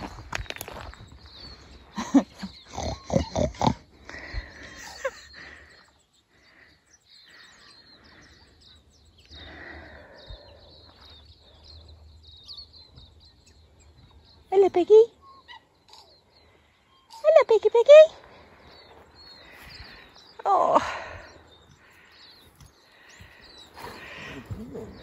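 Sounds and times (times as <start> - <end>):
pigs grunting: 2.6 - 4.3, 23.8 - 25.0
faint high-pitched chirping: 4.4 - 25.0.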